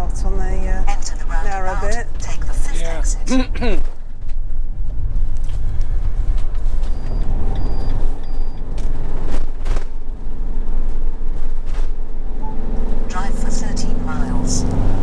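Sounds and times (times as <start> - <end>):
engine and road rumble: 0.0 - 15.0
short high beeps: 6.9 - 8.6.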